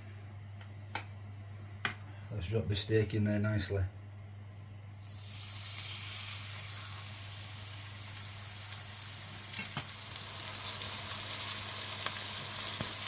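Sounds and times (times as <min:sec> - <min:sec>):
steak sizzling in a frying pan: 0:05.0 - 0:13.0.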